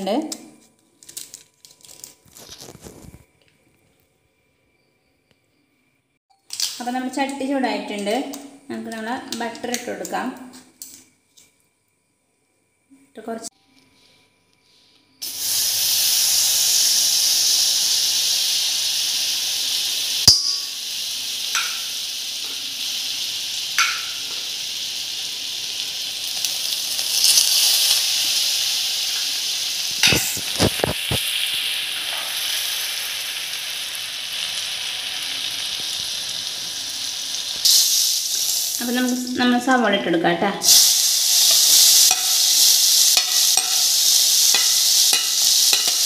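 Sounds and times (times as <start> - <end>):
butter sizzling in a pan: 15.2 - 39.4, 40.6 - 46.0.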